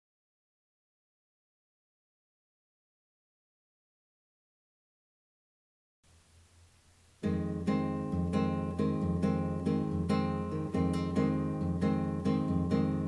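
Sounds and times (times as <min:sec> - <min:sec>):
classical guitar plucked chords: 0:06.5 - 0:13.0.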